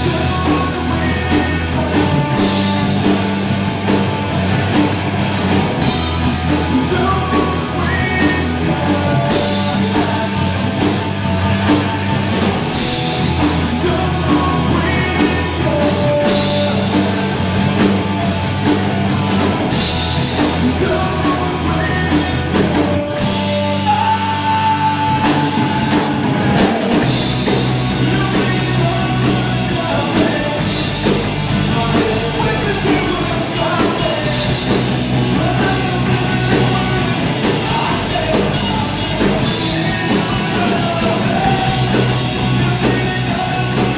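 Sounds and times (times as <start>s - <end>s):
live rock band playing: 0.0s - 43.9s.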